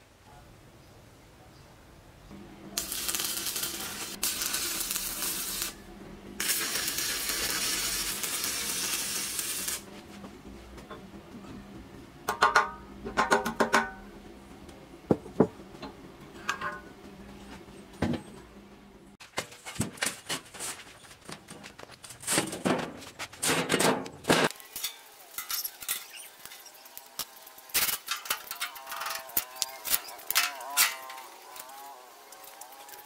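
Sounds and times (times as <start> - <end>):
metal scraping over metal: 22.3 - 31.8.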